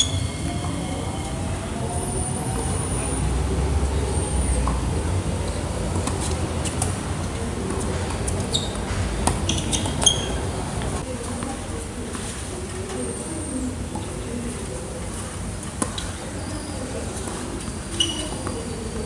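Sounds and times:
train rumbling: 0.0 - 7.2.

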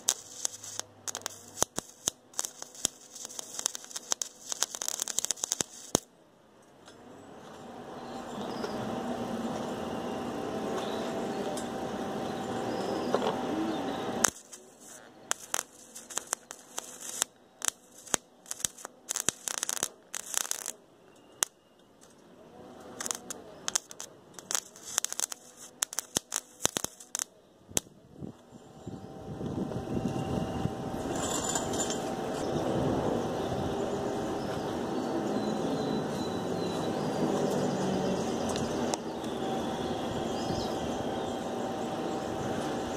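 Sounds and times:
welding arc crackling: 0.0 - 6.1, 14.2 - 20.8, 21.4 - 22.2, 22.9 - 27.9
steady hum: 0.0 - 6.5, 7.2 - 42.9.

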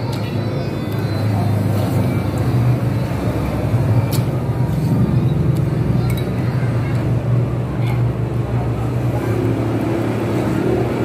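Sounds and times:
low rumble of road traffic: 0.0 - 11.0.

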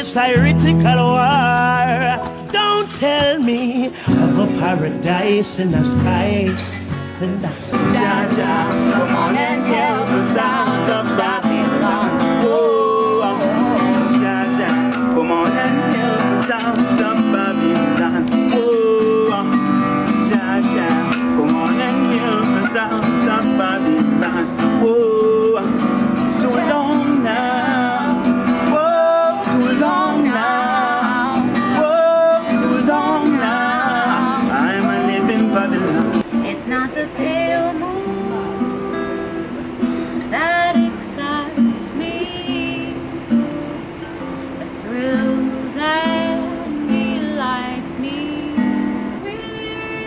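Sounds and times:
man singing: 0.0 - 38.8
acoustic guitar: 0.0 - 50.0
woman singing: 7.6 - 19.5, 20.2 - 38.9, 40.2 - 43.2, 44.6 - 50.0.

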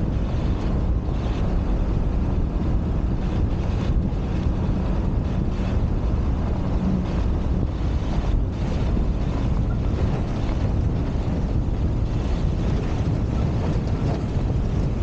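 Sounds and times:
pickup truck rumbling on dirt road: 0.0 - 15.0
wind buffeting microphone: 0.0 - 15.0.

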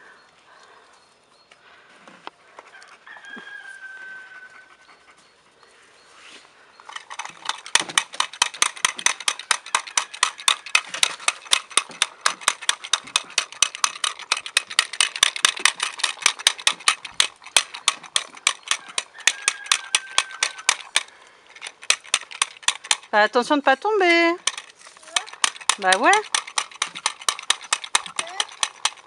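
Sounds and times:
puppies chewing: 6.8 - 23.2.

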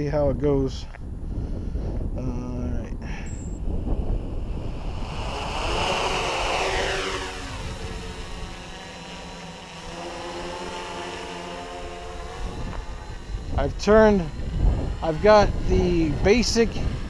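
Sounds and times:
quadcopter motors humming: 0.0 - 17.0.

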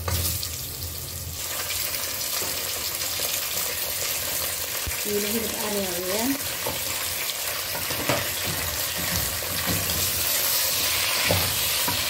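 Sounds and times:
onions and meat sizzling in oil: 0.0 - 12.0.

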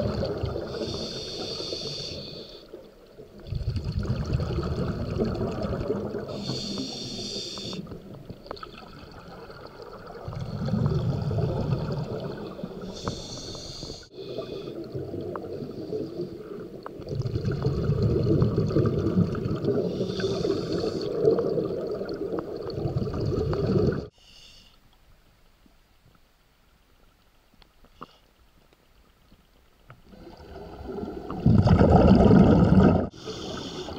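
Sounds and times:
regulator hissing inhalations: 0.7 - 2.8, 6.3 - 8.0, 12.8 - 14.9, 19.9 - 21.2, 24.1 - 24.8, 33.1 - 33.9
bubbling exhalations underwater: 3.4 - 6.4, 8.5 - 13.0, 16.9 - 24.1, 30.1 - 33.2.

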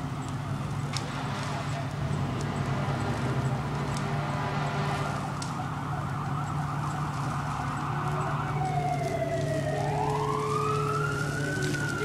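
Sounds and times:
siren wail falling in pitch: 4.8 - 12.0
siren warbling: 5.0 - 12.0.

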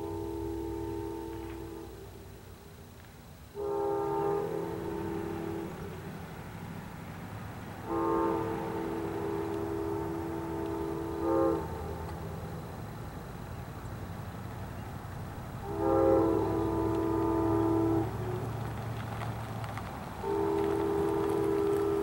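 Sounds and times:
train air horn blasts: 0.0 - 2.3, 3.5 - 6.2, 7.8 - 12.7, 15.6 - 18.7, 20.2 - 22.0
train rumble: 0.0 - 22.0.

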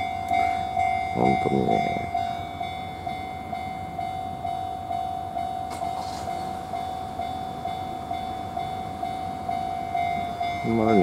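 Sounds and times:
level crossing alarm ringing: 0.0 - 11.0.

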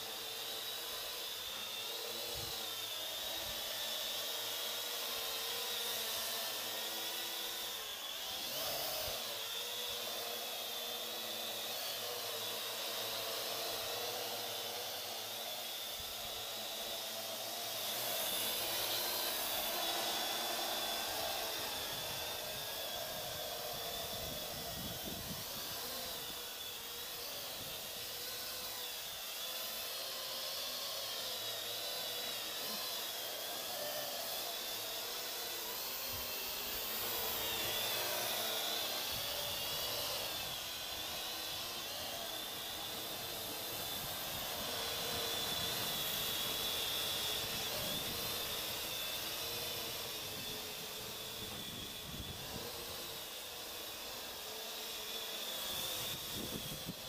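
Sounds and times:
drone propellers whirring: 0.0 - 57.0.

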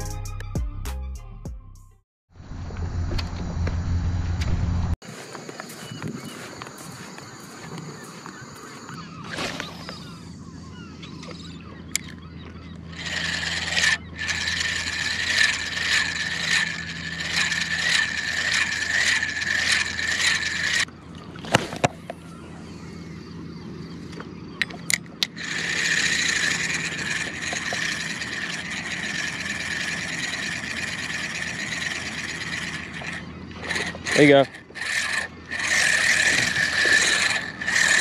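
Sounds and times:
fishing reel cranking whir: 12.9 - 20.9, 24.6 - 38.0.

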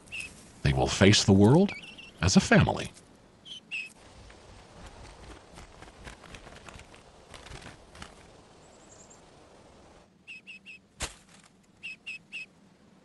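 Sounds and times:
ducklings peeping: 3.5 - 3.9
duck wings flapping: 4.0 - 8.5.

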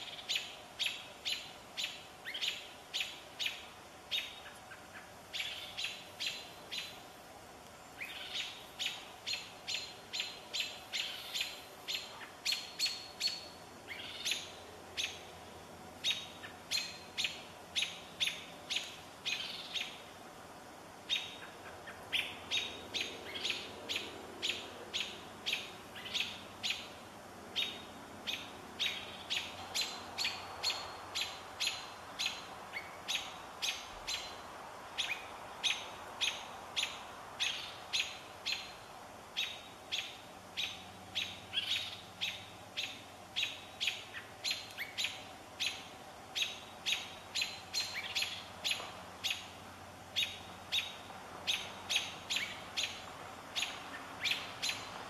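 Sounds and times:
high chip calls: 7.9 - 15.3.

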